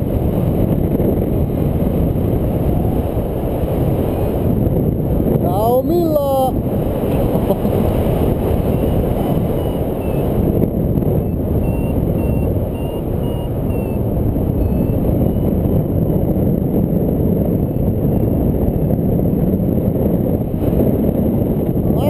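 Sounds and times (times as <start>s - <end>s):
wind rushing over microphone: 0.0s - 22.0s
variometer beeping: 8.7s - 10.4s, 11.2s - 14.0s.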